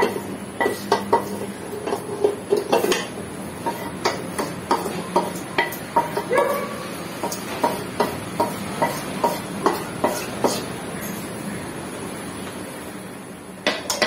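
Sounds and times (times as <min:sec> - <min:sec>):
spoon scraping metal plate: 0:07.2 - 0:11.2.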